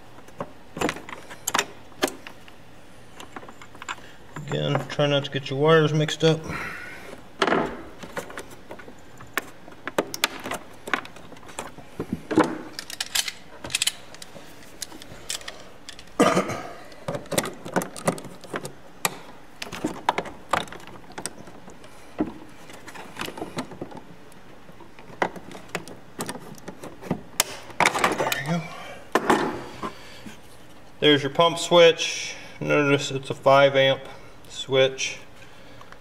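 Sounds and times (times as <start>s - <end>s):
pliers clicking and rattling on switch: 12.7s - 16.2s.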